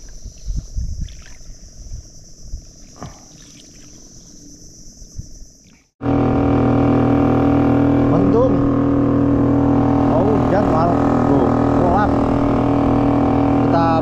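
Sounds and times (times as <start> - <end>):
insects droning: 0.0 - 14.0
outboard motor running: 6.0 - 14.0.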